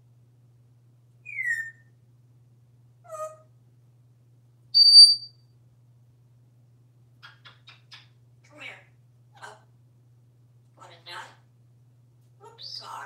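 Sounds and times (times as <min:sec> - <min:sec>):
parrot whistling: 0:01.3 - 0:01.8, 0:04.8 - 0:05.3.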